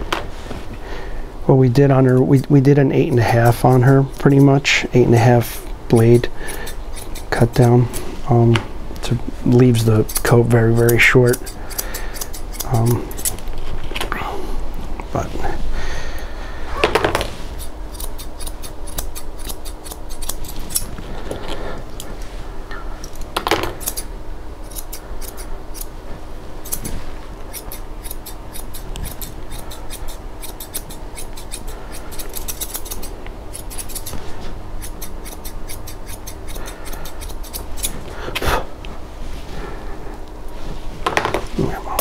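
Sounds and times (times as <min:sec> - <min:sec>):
shears snipping hair: 0:02.0 - 0:08.3, 0:09.5 - 0:13.6, 0:17.5 - 0:22.3, 0:23.0 - 0:25.9, 0:26.6 - 0:38.5.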